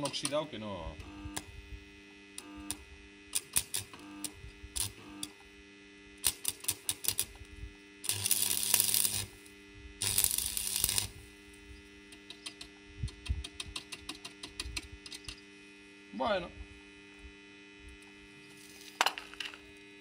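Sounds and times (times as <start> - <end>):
electrode scratching crackling clicks: 0.0 - 1.5, 2.4 - 5.4, 6.2 - 9.4, 10.0 - 11.2, 12.0 - 15.5, 17.9 - 19.8
welding arc sputtering: 0.0 - 5.5, 6.1 - 15.5, 17.9 - 20.0
welder hum: 0.0 - 20.0.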